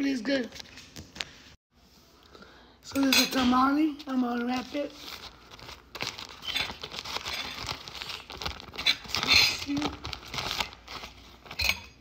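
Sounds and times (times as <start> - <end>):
plastic bag crinkling: 4.0 - 11.7.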